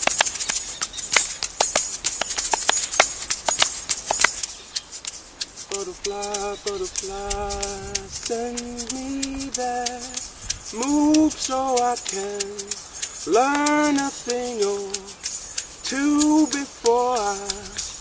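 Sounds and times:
shaker rattle: 0.0s - 18.0s
person singing slow melody: 5.7s - 18.0s.

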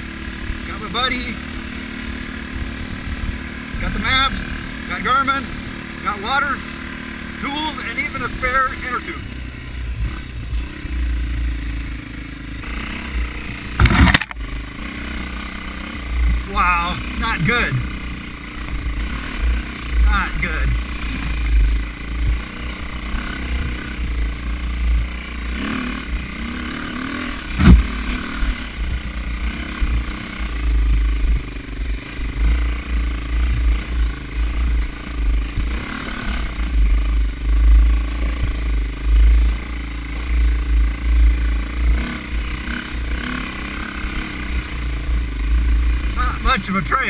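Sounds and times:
bike rattling over rough ground: 0.0s - 47.0s
dirt bike engine running: 0.0s - 47.0s
sharp knock: 13.8s - 14.4s.

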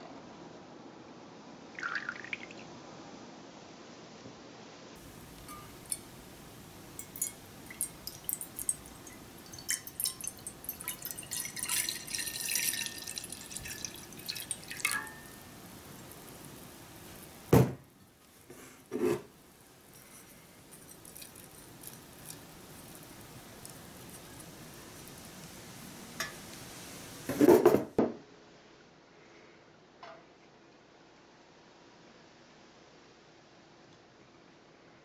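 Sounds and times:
liquid pouring into frying pan: 1.8s - 2.6s, 5.0s - 17.8s, 18.9s - 27.8s.

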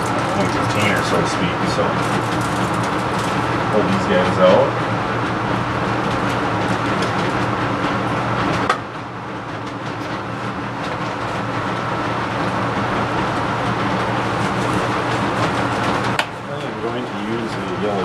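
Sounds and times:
fan hum: 0.0s - 18.0s
foil crinkling: 1.8s - 3.5s.

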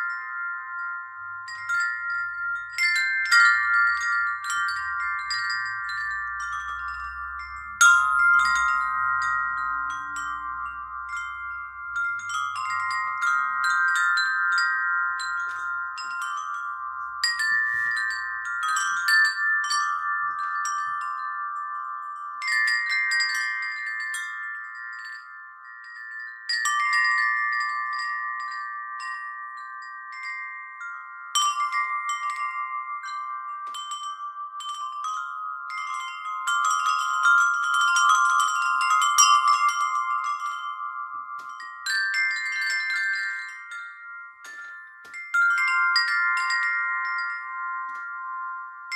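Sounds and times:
wind chimes ringing: 0.0s - 48.9s.

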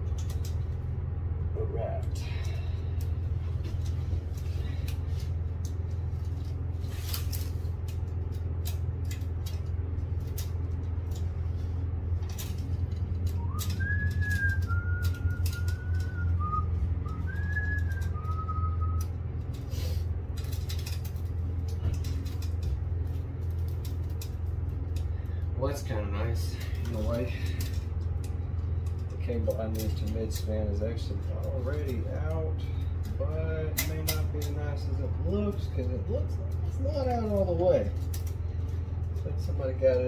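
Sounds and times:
clicks and rustles of handling: 0.0s - 0.9s, 2.0s - 40.0s
steady low hum: 0.0s - 40.0s
person whistling: 13.3s - 19.1s.

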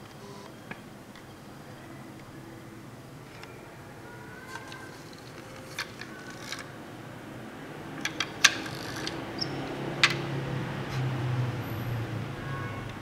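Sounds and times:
plastic toy clicks and knocks: 4.5s - 6.7s, 8.0s - 9.2s.

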